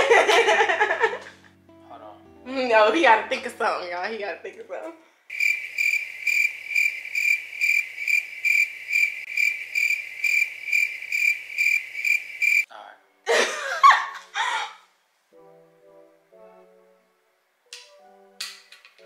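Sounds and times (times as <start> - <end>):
crickets chirping: 5.3 - 12.7.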